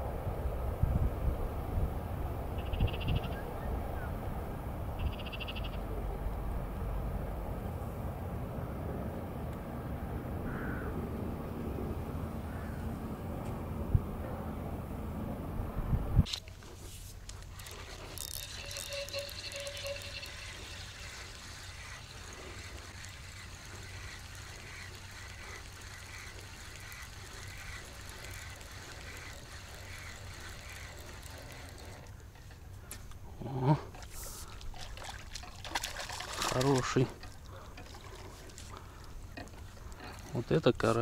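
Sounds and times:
fishing reel ticking whirr: 16.2 - 33.2.

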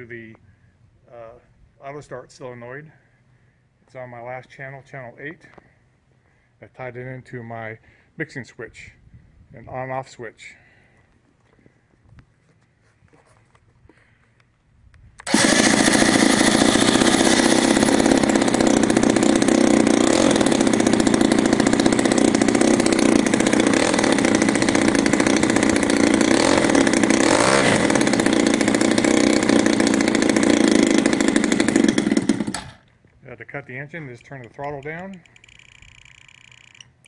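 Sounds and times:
model aircraft engine running: 15.2 - 32.8.

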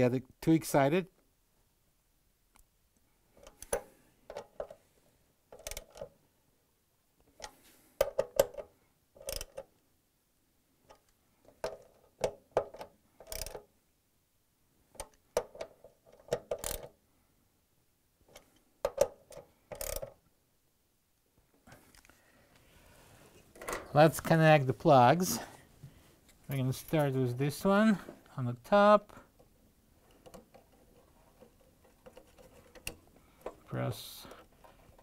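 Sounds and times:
socket wrench ratchet clicking: 5.6 - 6.0, 9.2 - 9.6, 13.2 - 13.6, 16.5 - 16.9, 19.7 - 20.1.

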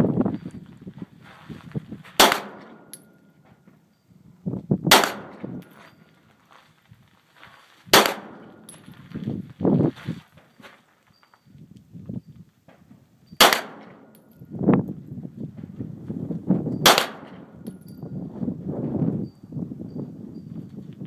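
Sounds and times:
pistol shots with echo: 2.2 - 3.1, 4.9 - 5.8, 7.9 - 8.8, 13.4 - 14.2, 16.8 - 17.8.

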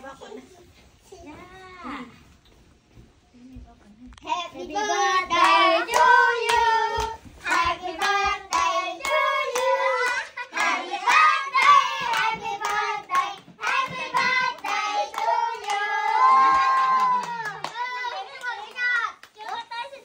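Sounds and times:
voices singing together: 4.3 - 17.2.

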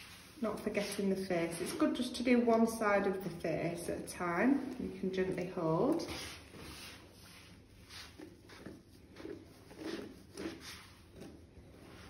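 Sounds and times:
brush strokes through dog fur: 0.0 - 2.2, 4.6 - 12.0.

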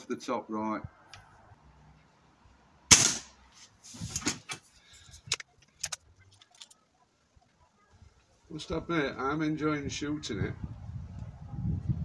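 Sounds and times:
air rifle firing: 2.9 - 3.3.

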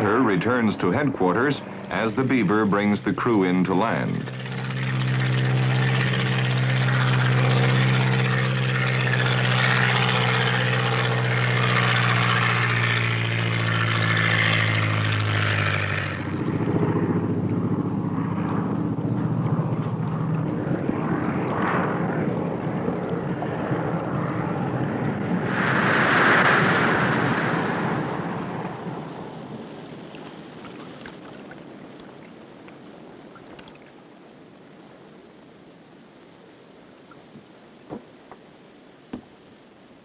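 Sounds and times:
propeller plane engine: 0.0 - 35.2
rush of water spray: 25.4 - 34.0.

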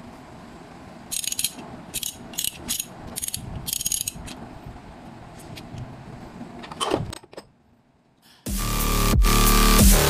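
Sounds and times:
ratchet pawl clicking: 1.1 - 4.4.

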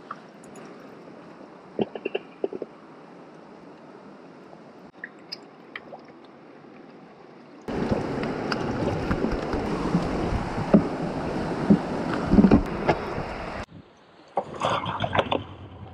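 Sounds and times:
rushing river water: 0.0 - 15.0
wind on microphone: 7.7 - 15.9.

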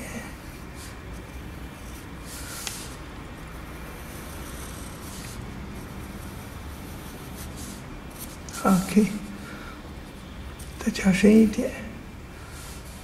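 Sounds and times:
low steady hum: 0.0 - 13.0
pencil scratching on paper: 0.4 - 9.1.

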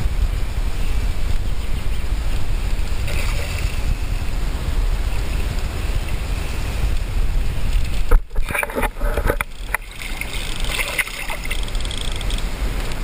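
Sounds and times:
river water noise: 0.0 - 13.0
wind rumbling on microphone: 0.0 - 13.0
fish splashing at surface: 3.1 - 3.8, 9.7 - 11.8.

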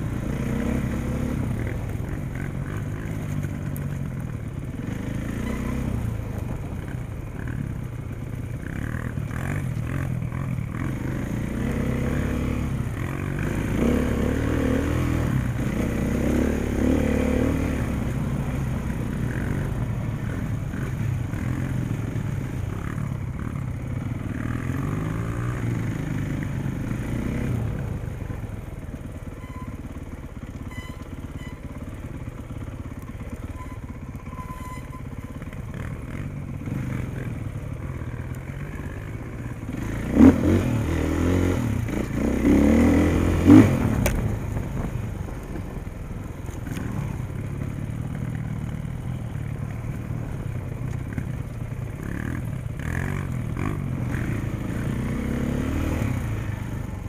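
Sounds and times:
dirt bike engine revving: 0.0 - 3.4, 4.7 - 6.2, 8.6 - 23.6, 33.3 - 44.4, 51.1 - 57.0.

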